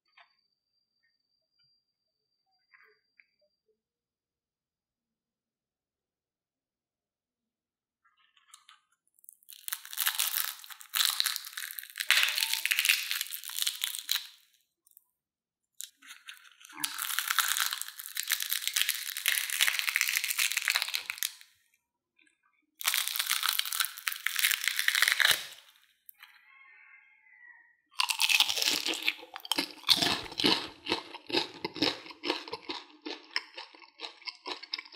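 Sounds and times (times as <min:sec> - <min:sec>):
fried shell crackling: 0:09.2 - 0:14.5, 0:15.8 - 0:21.5, 0:22.8 - 0:25.8, 0:28.0 - 0:34.9.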